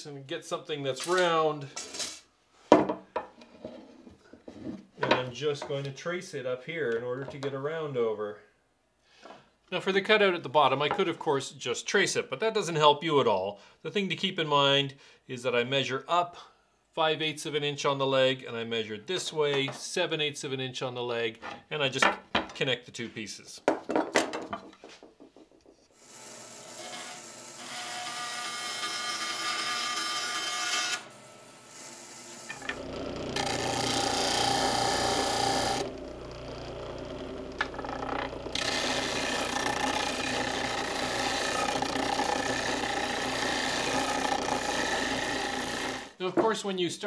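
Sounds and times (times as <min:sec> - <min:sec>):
disc sander grinding wood: 0:32.3 - 0:46.2
another tool working wood: 0:32.4 - 0:46.2.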